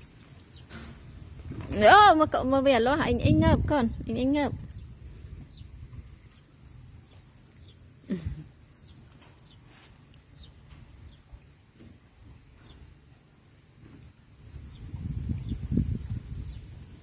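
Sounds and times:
birds chirping: 0.2s - 2.8s, 3.9s - 13.4s, 14.5s - 17.0s.

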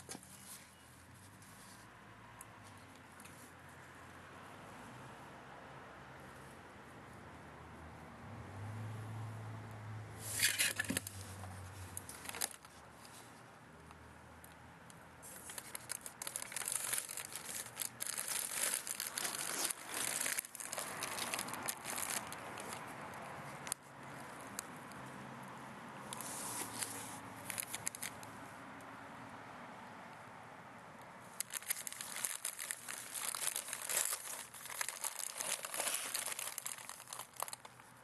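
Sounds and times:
plastic bag crinkling: 12.0s - 12.8s, 15.3s - 22.8s, 26.6s - 28.2s, 31.4s - 37.8s.

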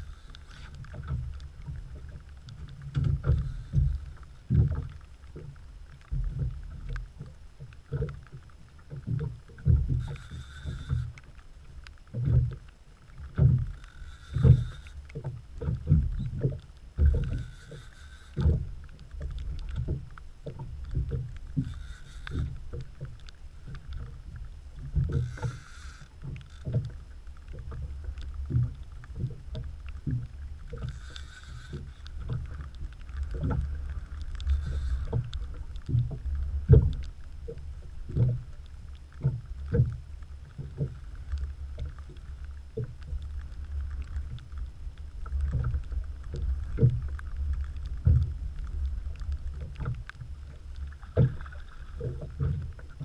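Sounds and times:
steady low rumble: 0.0s - 53.0s
water slapping boat hull: 0.0s - 53.0s.

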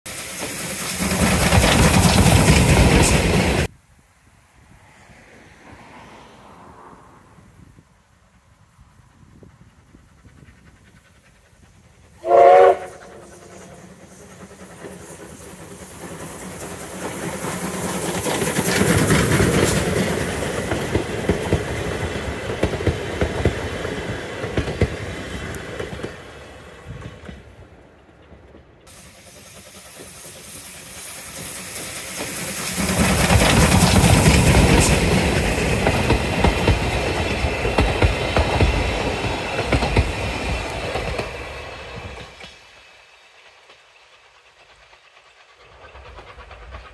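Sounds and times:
steam train running noise: 0.1s - 3.7s, 8.3s - 46.9s
train wheels on rails: 0.1s - 3.7s, 5.0s - 46.9s
steam locomotive whistle: 12.2s - 14.1s.

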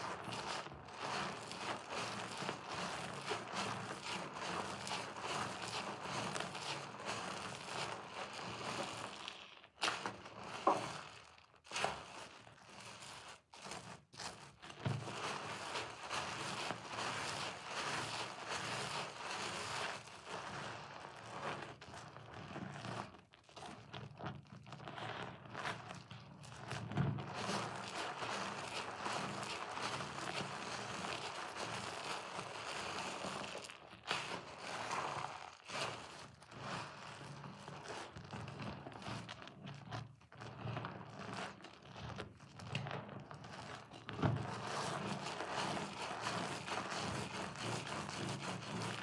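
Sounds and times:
soap lather squishing: 27.3s - 35.8s.

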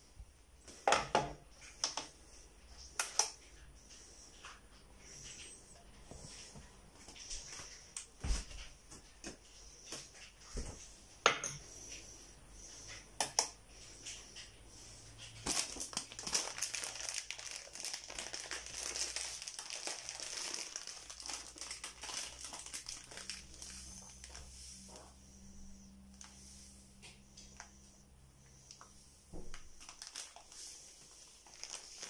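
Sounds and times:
plastic bag crinkling: 15.4s - 25.1s, 29.4s - 32.0s.

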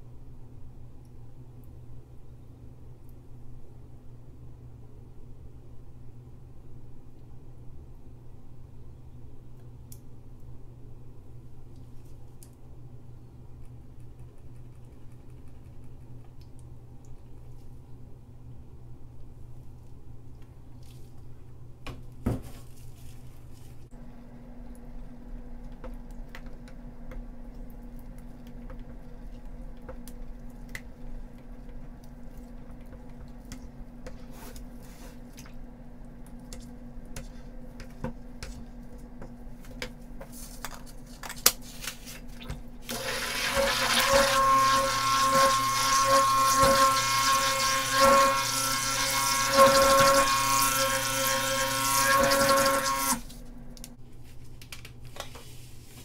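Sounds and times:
stick blender whining: 42.9s - 53.2s.

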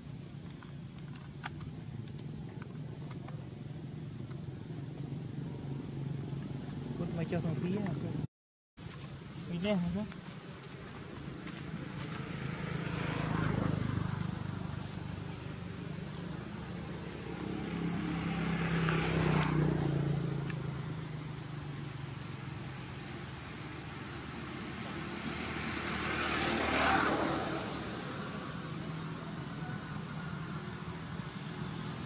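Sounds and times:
passing vehicle engines: 9.2s - 32.0s.

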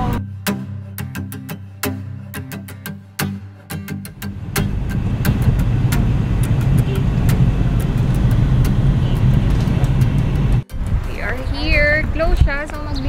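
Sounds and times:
car road and engine rumble: 4.2s - 12.5s.

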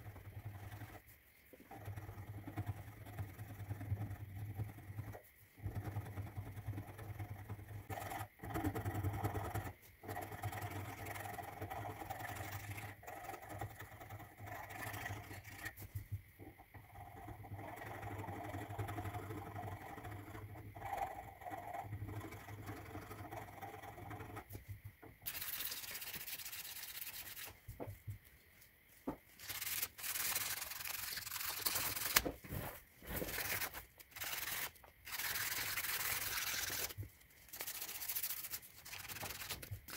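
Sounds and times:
sandpaper rubbing on wood: 25.3s - 27.6s, 33.2s - 39.9s.

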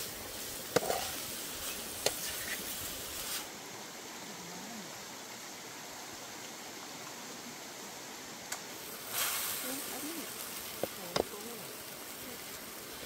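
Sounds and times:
river water rushing: 3.4s - 13.0s.

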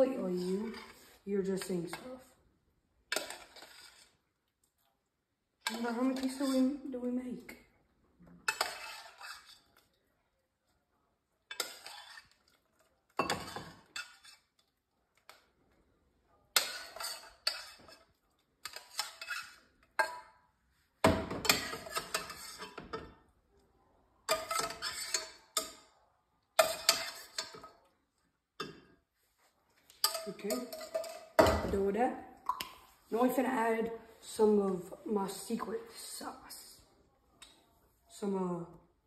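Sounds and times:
metal spoon scraping saucepan: 0.0s - 2.2s, 3.1s - 4.2s, 5.6s - 7.0s, 8.4s - 9.8s, 11.5s - 12.6s, 13.2s - 14.6s, 16.6s - 20.2s, 21.4s - 23.1s, 24.3s - 25.8s, 26.6s - 27.7s, 29.9s - 31.8s.

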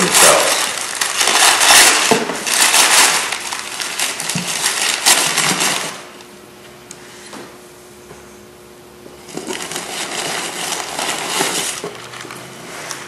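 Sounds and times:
packing paper rustling and crinkling: 0.0s - 6.2s, 9.3s - 13.0s.

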